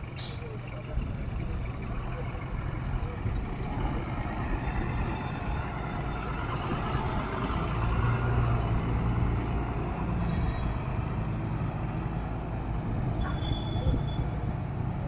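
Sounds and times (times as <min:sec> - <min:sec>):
bus engine running: 0:00.0 - 0:15.0
tyre and road noise: 0:00.0 - 0:15.0.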